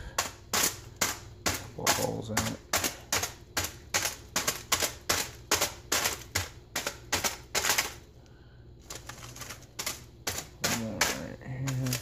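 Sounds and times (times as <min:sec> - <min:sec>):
knife stabbing aluminium foil: 0:09.0 - 0:12.0.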